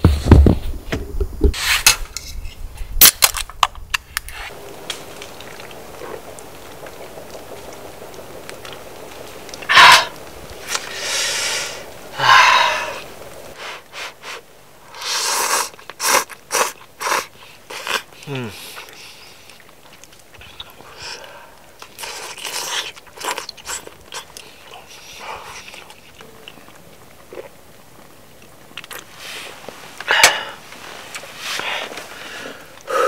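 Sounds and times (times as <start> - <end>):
man slurping noodles: 15.0 - 19.0.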